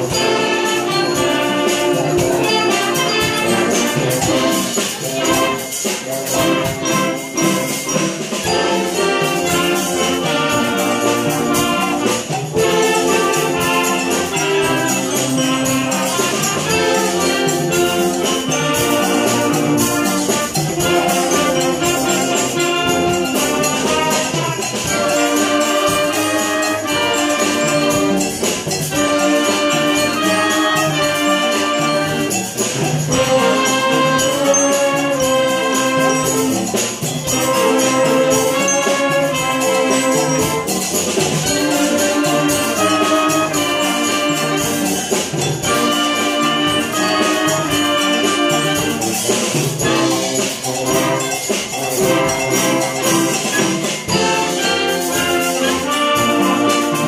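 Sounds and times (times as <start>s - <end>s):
concert band playing: 0.0s - 57.0s
percussion keeping time: 0.0s - 57.0s.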